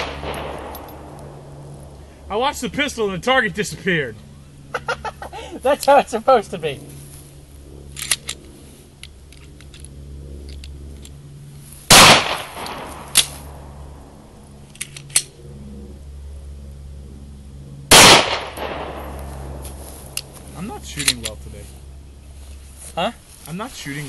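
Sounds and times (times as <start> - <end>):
pistol shots with echo: 0.0 - 1.1, 11.9 - 13.3, 17.9 - 19.2.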